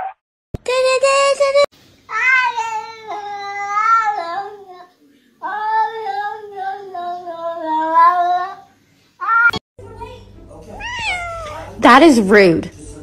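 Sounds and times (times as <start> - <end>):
cat yowling: 10.8 - 11.8.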